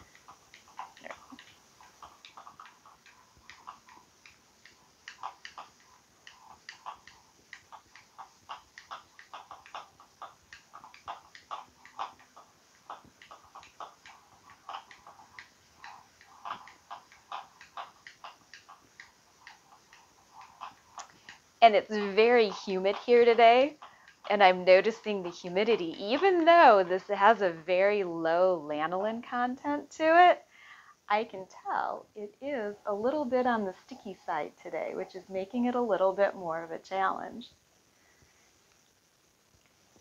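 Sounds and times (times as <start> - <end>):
spindle clicking on wooden floor: 0.0 - 26.9.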